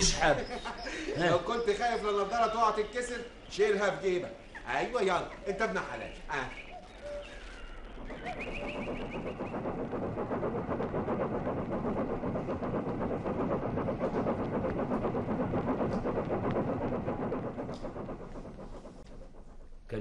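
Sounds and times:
vehicle engine running: 0:07.4 - 0:20.0.

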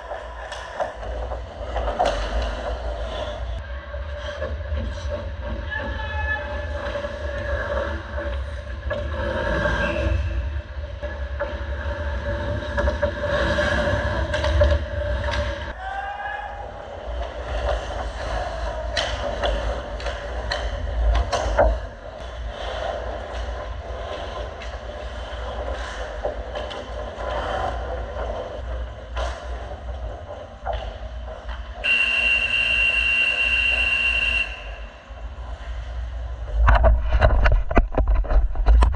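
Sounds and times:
sharp clicks of sticks or puck: 0:00.0 - 0:02.8, 0:17.6 - 0:21.8
low hum of rink: 0:00.0 - 0:38.9
skates scraping ice: 0:04.2 - 0:15.8, 0:16.9 - 0:34.5
high-pitched horn tone: 0:31.8 - 0:35.0.

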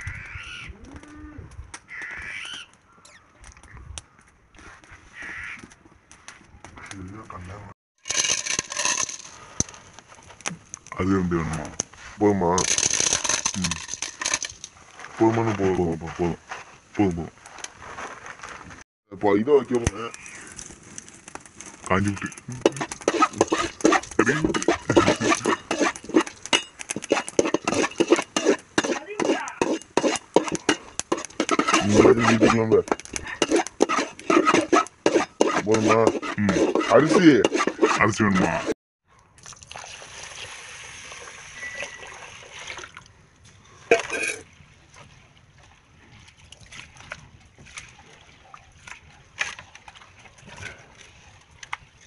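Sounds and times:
metal ladle scraping pan: 0:08.0 - 0:09.4, 0:12.6 - 0:14.7, 0:22.6 - 0:38.8
water pouring onto rice: 0:39.4 - 0:43.0
rice sloshing in water: 0:43.9 - 0:51.6.

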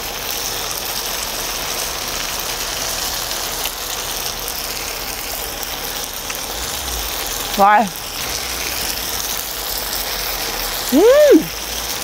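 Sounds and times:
meat sizzling on a griddle: 0:00.0 - 0:12.0.

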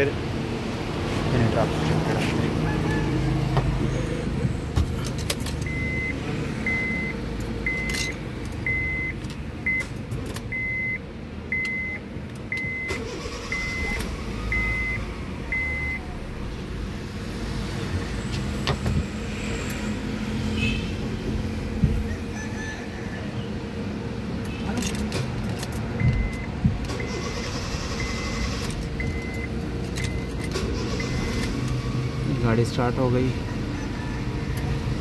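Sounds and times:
dashboard warning beeps: 0:05.6 - 0:16.0, 0:26.0 - 0:31.5.

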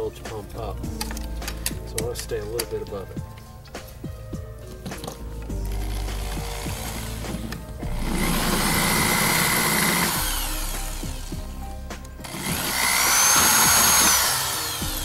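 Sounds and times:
background music: 0:00.0 - 0:15.0
cordless drill whining: 0:05.6 - 0:11.6, 0:12.2 - 0:15.0.

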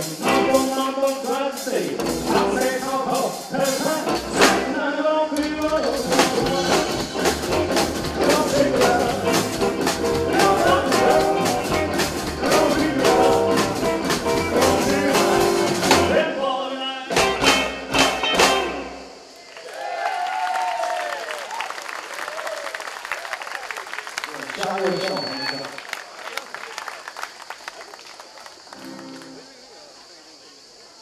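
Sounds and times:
live rockabilly band playing: 0:00.0 - 0:16.4, 0:17.1 - 0:19.1.

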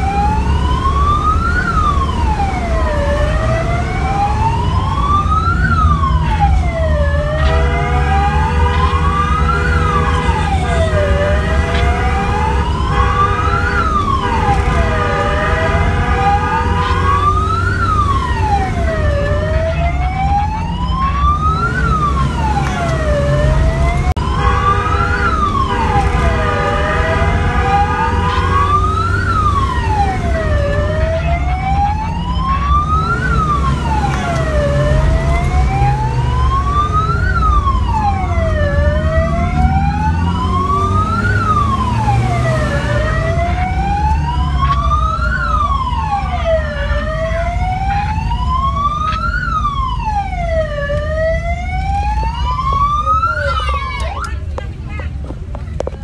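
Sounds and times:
wailing siren: 0:00.0 - 0:54.6.

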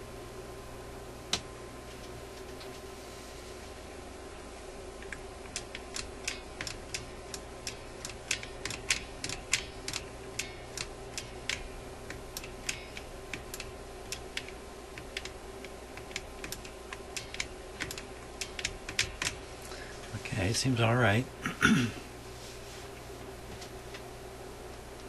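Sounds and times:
faint hum: 0:00.0 - 0:25.0
sharp mechanical clicks: 0:05.0 - 0:19.4.

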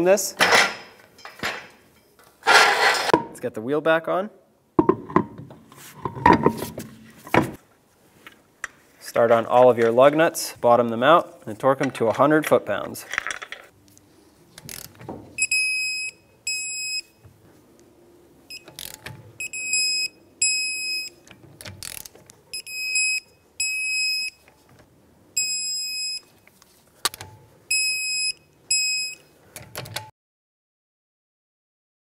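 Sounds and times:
torque wrench beeping: 0:18.5 - 0:21.2.

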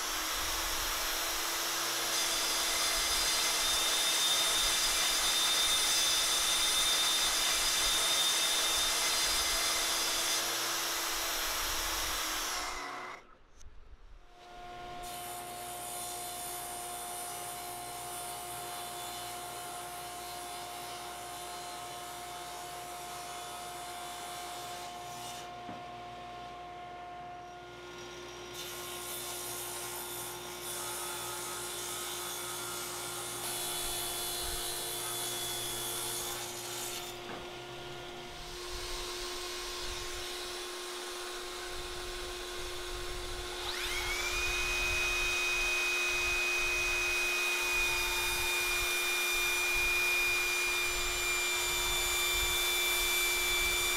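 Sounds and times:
table saw cutting wood: 0:00.0 - 0:13.3, 0:14.5 - 0:53.9
saw winding up: 0:38.8 - 0:53.9.

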